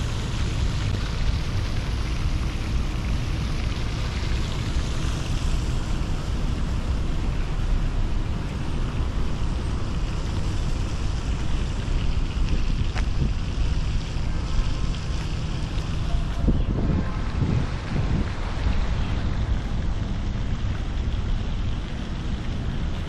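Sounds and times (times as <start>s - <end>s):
rushing outdoor noise: 0.0s - 23.0s.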